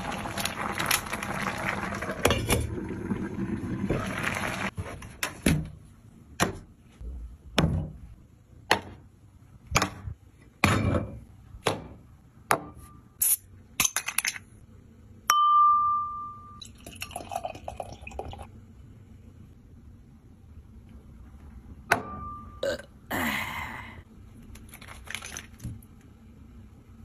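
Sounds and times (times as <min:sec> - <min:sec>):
beer pouring into glass: 0:16.6 - 0:18.5.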